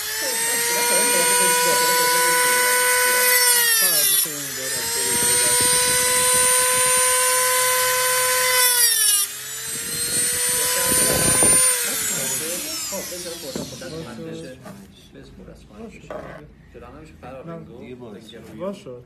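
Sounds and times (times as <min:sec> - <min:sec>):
rotary tool cutting metal ring: 0:00.0 - 0:14.2.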